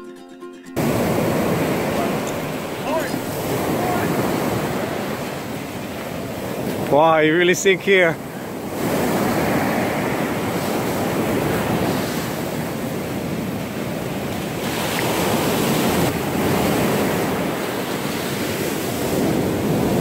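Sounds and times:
surf washing onto beach: 0:00.8 - 0:20.0
wind noise on microphone: 0:08.5 - 0:20.0.

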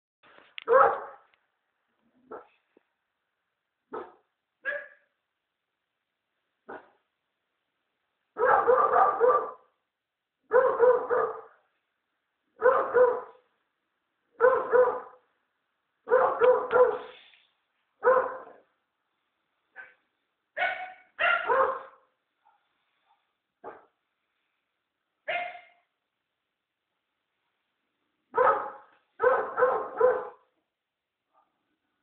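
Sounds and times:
dog barking: 0:00.6 - 0:01.3, 0:02.3 - 0:02.6, 0:03.9 - 0:05.1, 0:06.7 - 0:07.0, 0:08.4 - 0:09.7, 0:10.5 - 0:11.6, 0:12.6 - 0:13.5, 0:14.4 - 0:15.2, 0:16.0 - 0:17.1, 0:18.0 - 0:18.7, 0:19.8 - 0:20.0, 0:20.6 - 0:24.0, 0:25.3 - 0:25.9, 0:28.3 - 0:30.5.

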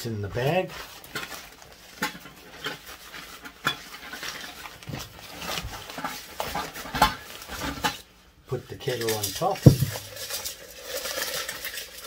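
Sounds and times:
metal parts knocking: 0:09.6 - 0:10.1.

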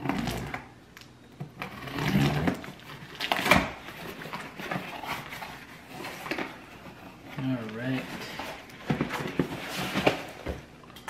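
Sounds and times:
cardboard scraping and rustling: 0:01.6 - 0:10.7.

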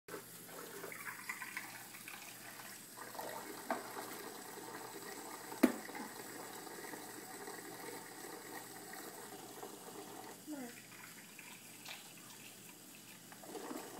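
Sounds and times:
faucet running into sink: 0:00.1 - 0:13.9.

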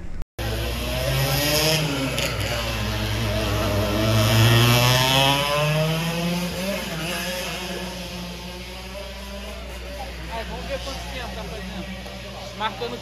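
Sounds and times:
racing kart engine revving: 0:00.0 - 0:13.0.

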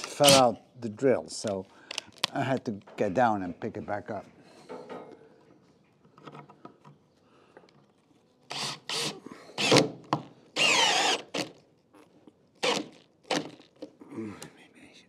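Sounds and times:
cordless drill drilling into wood: 0:00.0 - 0:00.5, 0:08.5 - 0:10.0, 0:10.6 - 0:11.6, 0:12.6 - 0:13.7.

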